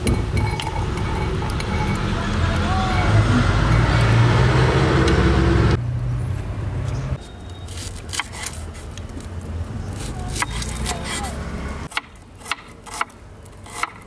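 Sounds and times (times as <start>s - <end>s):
knife slicing onion: 7.2s - 9.0s, 9.9s - 14.0s.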